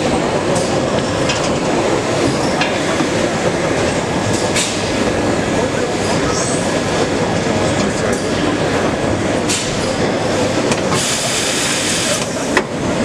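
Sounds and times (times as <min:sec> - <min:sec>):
machine hiss: 0:10.9 - 0:12.4.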